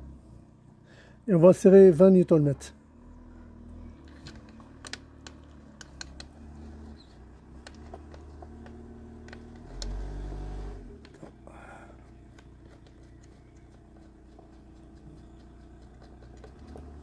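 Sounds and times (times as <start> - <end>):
hand tool clicks and taps: 4.1 - 6.3.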